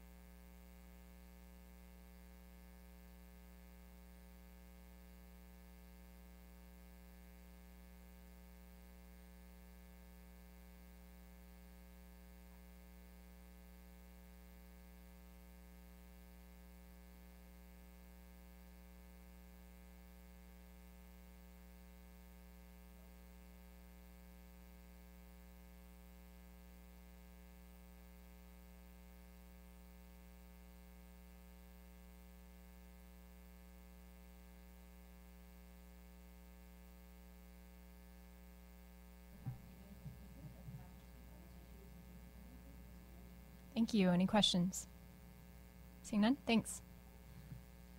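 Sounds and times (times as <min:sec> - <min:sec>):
electrical hum: 0:00.0 - 0:47.9
faint voice: 0:39.5 - 0:43.4.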